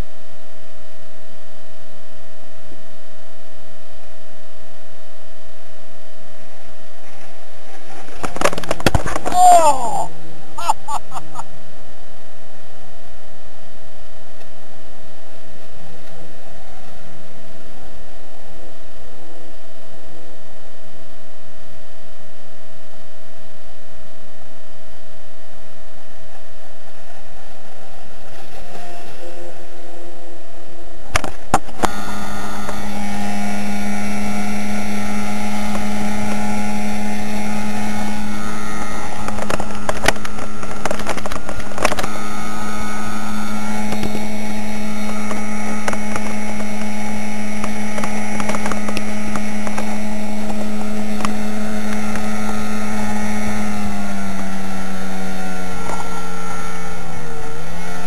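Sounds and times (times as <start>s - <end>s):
motorboat engine: 27.0s - 58.0s.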